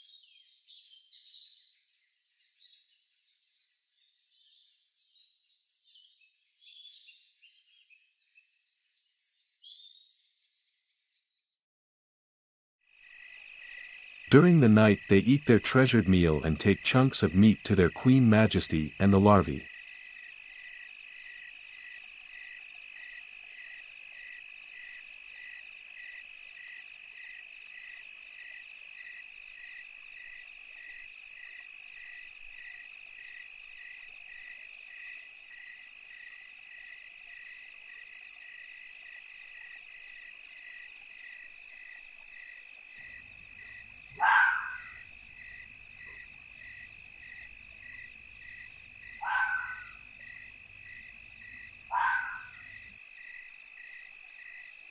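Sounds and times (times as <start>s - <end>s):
insects chirping: 12.9s - 54.9s
calls falling in pitch: 49.2s - 50.0s, 51.9s - 52.6s.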